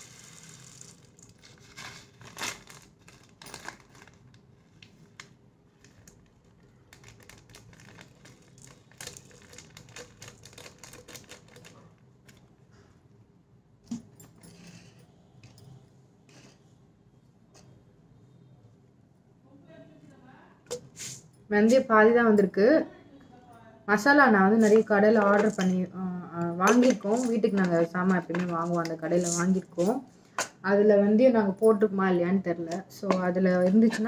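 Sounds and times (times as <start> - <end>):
seeds rattling into glass jar: 0.0 - 4.1, 7.0 - 11.8, 24.6 - 25.8, 26.7 - 29.9.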